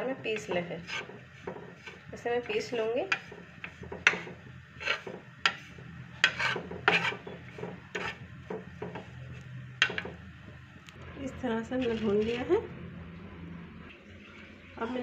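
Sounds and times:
wooden spatula scraping a dry pan: 0.1 - 10.2.

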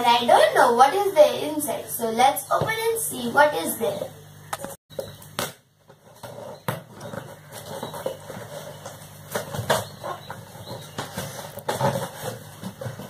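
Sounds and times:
cardboard box scratches and taps: 6.0 - 13.0.

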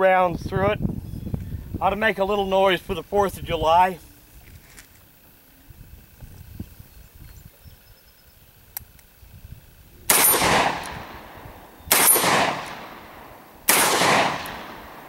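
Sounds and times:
shotgun shots: 10.1 - 15.0.

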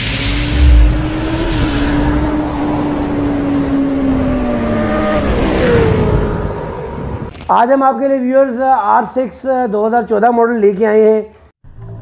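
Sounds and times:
motorcycle engine hum: 0.0 - 7.3
rushing noise: 0.0 - 7.3.

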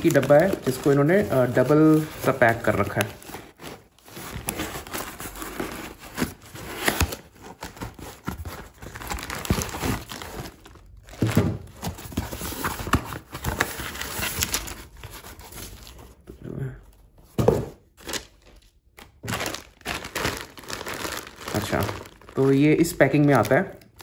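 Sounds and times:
plastic wrap crinkling: 0.0 - 11.7, 18.0 - 24.0
cardboard box being torn open: 4.3 - 7.8.

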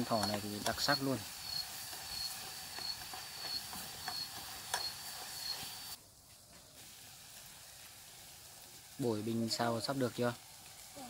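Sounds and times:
steady hiss: 0.0 - 11.0
insect pulsing trill: 0.1 - 6.0.

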